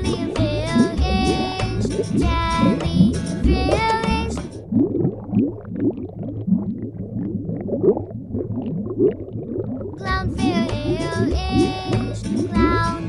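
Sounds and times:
bright sung-sounding melody: 0:00.0 - 0:04.6, 0:10.0 - 0:13.0.

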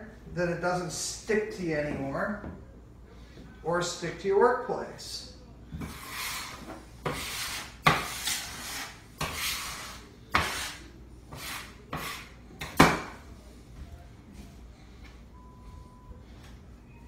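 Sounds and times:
metal scraper scraping countertop: 0:05.8 - 0:12.8.

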